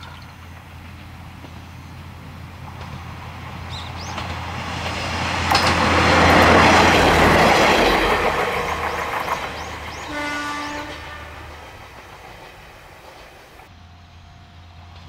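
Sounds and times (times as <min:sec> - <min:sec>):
diesel railcar engine: 0:00.0 - 0:15.0
wheels rumbling on rails: 0:00.0 - 0:15.0
train horn: 0:06.2 - 0:12.0.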